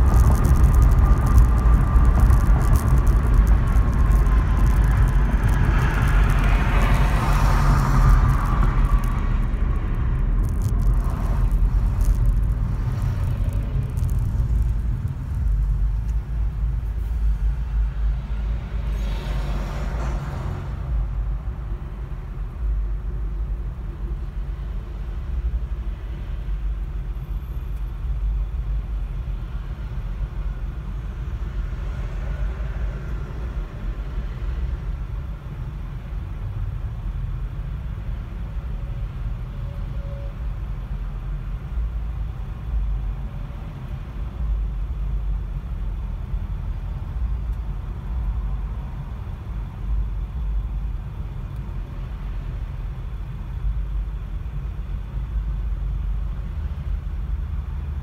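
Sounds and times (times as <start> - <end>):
car cabin rumble: 0.0 - 17.7
road and tyre noise: 0.0 - 58.0.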